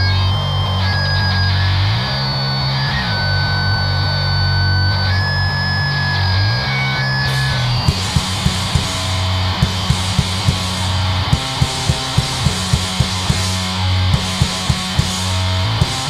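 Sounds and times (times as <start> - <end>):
bass guitar: 0.0 - 16.0
distorted electric guitar: 0.0 - 16.0
high guitar feedback: 0.0 - 16.0
fast drum hits: 7.9 - 16.0.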